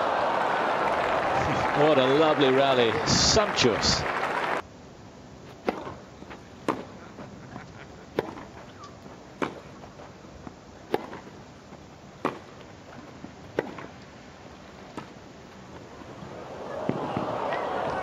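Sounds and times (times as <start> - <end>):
tennis ball struck with racquets: 5.6 - 6.0, 6.6 - 6.9, 8.2 - 8.5, 9.4 - 9.7, 10.9 - 11.3, 12.2 - 12.5, 13.5 - 13.9.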